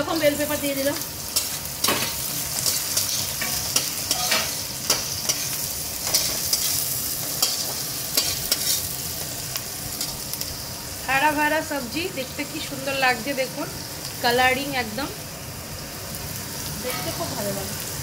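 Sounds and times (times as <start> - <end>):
vegetables sizzling in hot oil: 0.0 - 18.0
metal spatula scraping a pan: 1.4 - 8.9.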